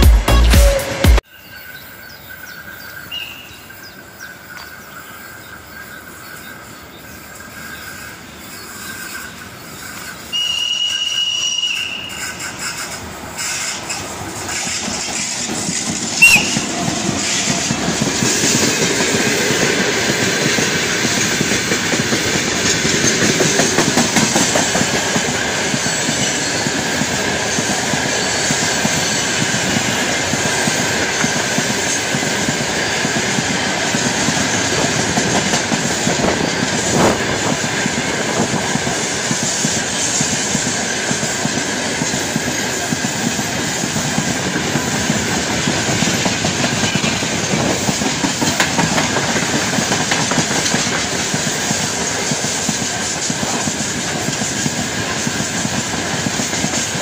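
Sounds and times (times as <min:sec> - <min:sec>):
freight train wheels rumbling on rails: 0:02.3 - 0:57.0
sharp train knock: 0:14.7 - 0:26.0, 0:34.0 - 0:57.0.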